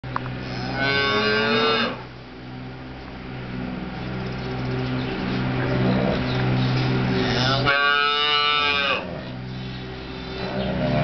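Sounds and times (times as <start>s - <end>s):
cow mooing: 0.4s - 2.1s, 7.0s - 11.0s
calf bawling: 5.4s - 11.0s.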